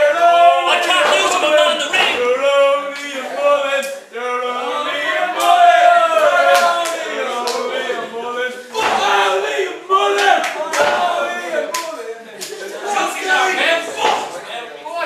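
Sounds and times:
crowd chanting: 0:00.0 - 0:14.6.

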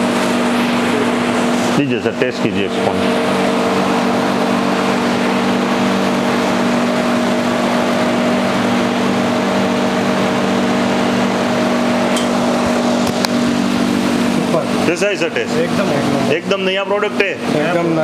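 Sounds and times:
refrigeration machine hum: 0:00.0 - 0:18.0.

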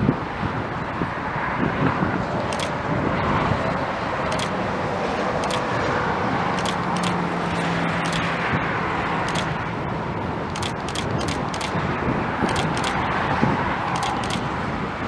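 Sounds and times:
diesel locomotives running: 0:00.0 - 0:15.0
faint ticks: 0:13.9 - 0:14.4.

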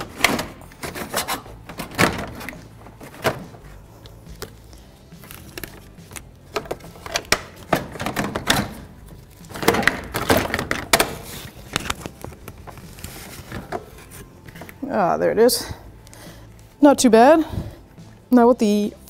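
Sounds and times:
plastic scraping and rubbing: 0:00.0 - 0:03.8, 0:05.2 - 0:14.8.

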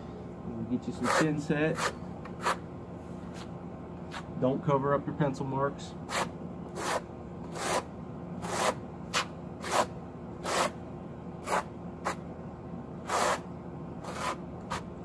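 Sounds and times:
trowel scraping mortar on block: 0:01.0 - 0:02.6, 0:06.1 - 0:10.8, 0:11.4 - 0:12.2, 0:13.1 - 0:14.9.

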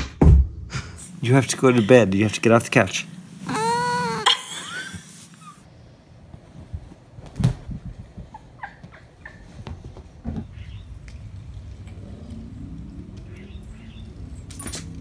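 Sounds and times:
cat meowing: 0:03.5 - 0:04.3.

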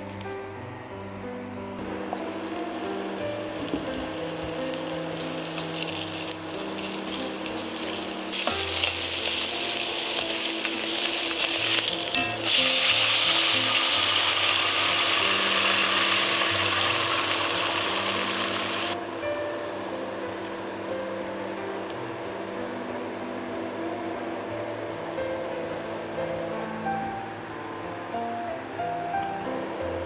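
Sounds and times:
water hissing on hot pot: 0:02.1 - 0:19.0
bacon sizzling in a pot: 0:02.2 - 0:19.0.

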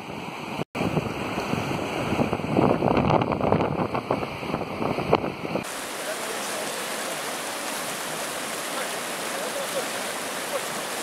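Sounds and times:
people wading and splashing: 0:05.6 - 0:11.0
river rushing: 0:05.6 - 0:11.0.

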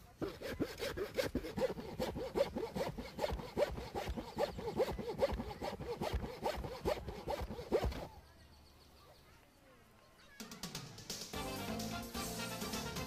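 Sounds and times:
hand saw cutting: 0:00.0 - 0:08.1.

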